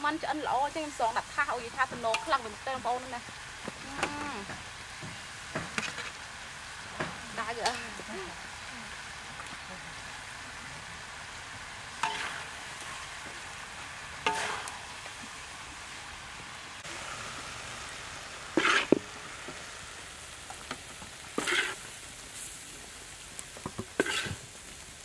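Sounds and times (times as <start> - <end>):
food sizzling in a wok: 0.0 - 25.0
metal spatula scraping wok: 5.6 - 6.2, 7.2 - 8.2, 11.9 - 13.2, 14.2 - 14.9, 18.5 - 19.2, 21.3 - 22.5, 23.9 - 24.5.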